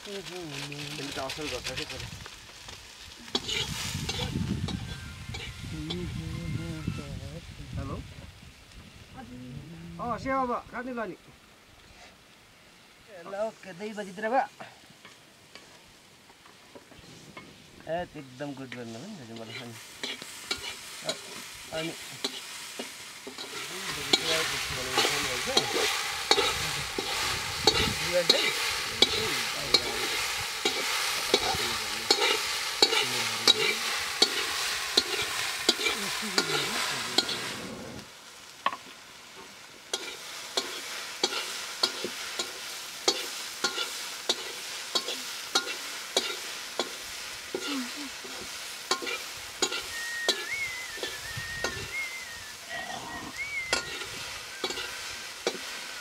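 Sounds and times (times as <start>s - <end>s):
potatoes sizzling in oil: 0.0s - 56.0s
spatula scraping a pan: 3.3s - 5.6s, 18.7s - 37.7s, 39.9s - 51.9s, 53.7s - 55.7s.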